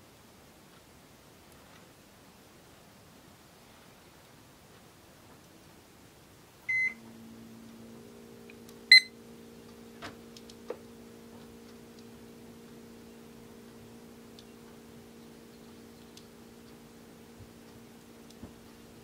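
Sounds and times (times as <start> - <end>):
low electrical hum: 0.0 - 19.0
electronic beeps: 6.7 - 7.0, 8.9 - 9.1.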